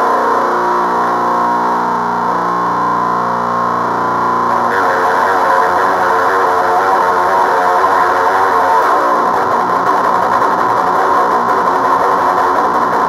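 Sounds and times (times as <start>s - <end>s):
distorted electric guitar chords: 0.0s - 13.0s.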